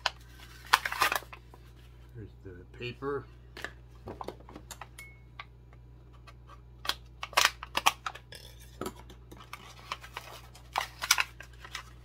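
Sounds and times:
plastic packaging clicking and crackling: 0.0 - 1.4, 6.8 - 8.4, 9.3 - 12.0
plastic crinkle: 9.4 - 12.0.

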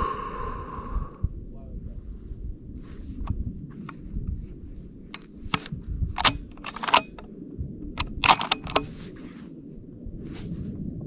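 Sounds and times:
rifle bolt metallic clicks: 5.1 - 7.3, 8.0 - 8.9.

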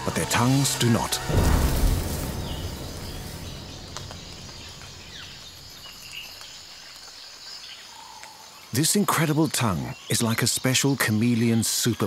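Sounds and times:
low background music: 0.0 - 6.4
bird chirps: 1.8 - 8.4.

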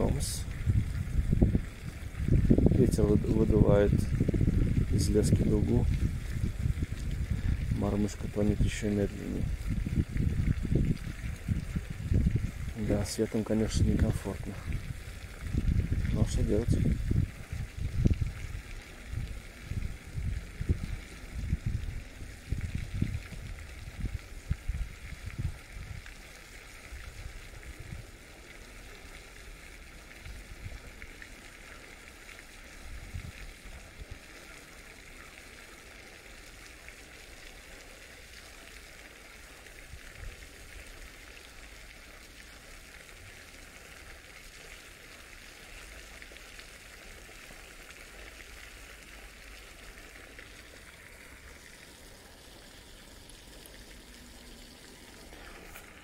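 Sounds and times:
wind buffeting microphone: 0.0 - 26.0, 32.9 - 34.2
splashing water: 0.0 - 56.0.

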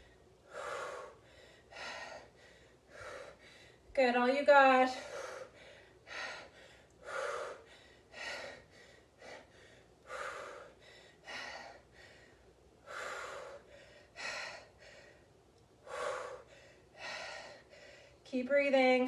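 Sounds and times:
woman breathing hard: 0.0 - 3.9, 4.9 - 18.3.

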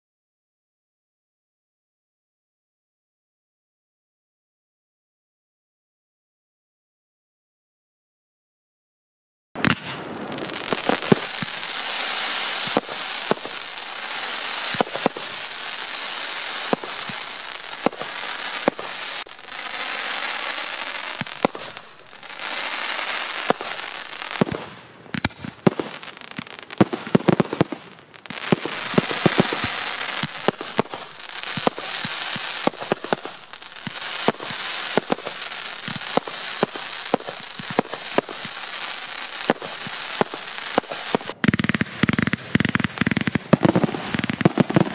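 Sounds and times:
fireworks bangs and crackling: 9.6 - 44.9
fireworks hissing: 9.6 - 44.9.

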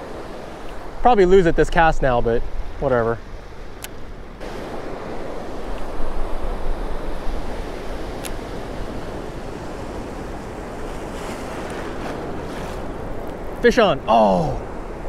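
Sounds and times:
ocean surf breaking: 0.0 - 15.0
wind buffeting microphone: 0.0 - 15.0
sharp click: 8.2 - 8.4.

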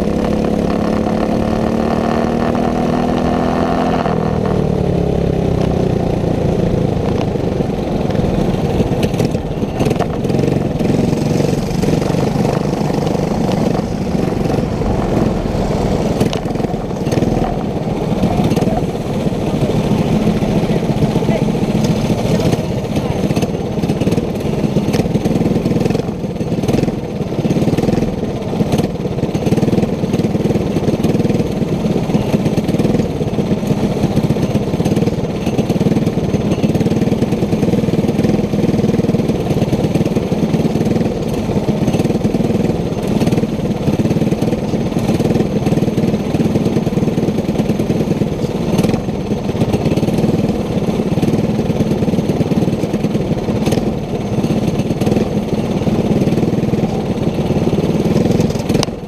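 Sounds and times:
go-kart engine running: 0.0 - 59.0.

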